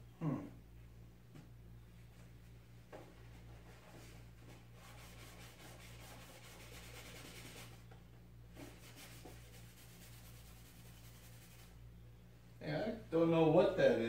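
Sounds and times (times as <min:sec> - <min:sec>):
low electrical hum: 0:00.0 - 0:14.0
fingers rubbing foam: 0:08.6 - 0:11.8.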